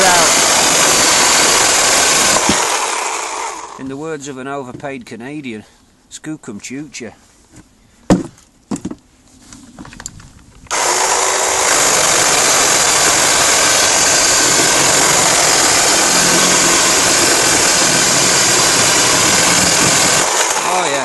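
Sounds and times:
electric chainsaw cutting branch: 0.0s - 3.8s, 10.7s - 21.0s.

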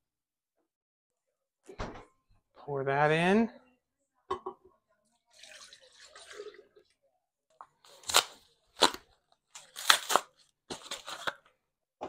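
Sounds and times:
cream pouring into a glass jar: 5.3s - 6.9s
packages clacking and crinkling: 7.8s - 11.4s.

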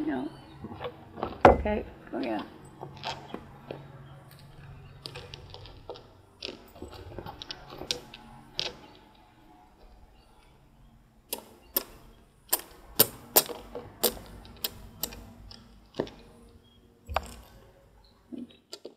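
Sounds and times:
checkers clacking on board: 0.8s - 9.1s, 11.3s - 17.7s.

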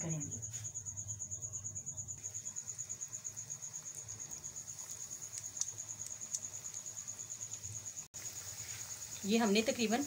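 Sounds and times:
cricket chirping: 0.0s - 10.0s
frying oil bubbling: 2.2s - 10.0s.

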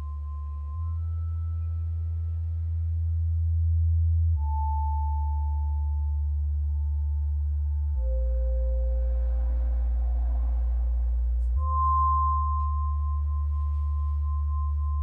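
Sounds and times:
deep synthesizer drone notes: 0.0s - 15.0s
pure high synth tone: 4.3s - 15.0s.

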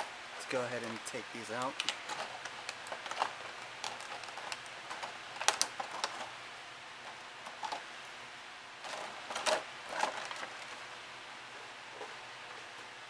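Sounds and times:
plastic packaging crinkling: 0.8s - 6.3s, 8.8s - 10.9s
sharp plastic snaps: 1.6s - 6.3s.

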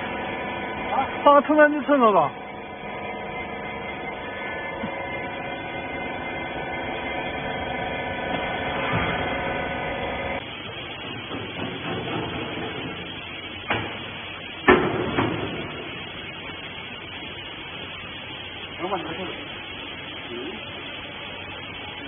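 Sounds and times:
electric pump motor hum: 0.0s - 22.0s
rough noisy machine: 0.0s - 22.0s.

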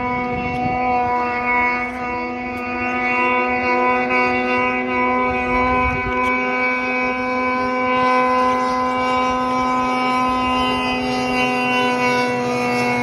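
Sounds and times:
snowmobile engine at high revs: 0.0s - 13.0s.

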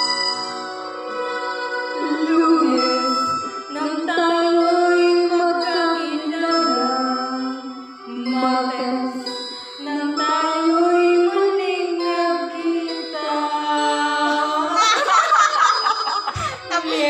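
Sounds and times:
backing track music: 0.0s - 17.0s
woman singing into microphone: 2.0s - 15.0s
woman laughing: 14.8s - 17.0s.

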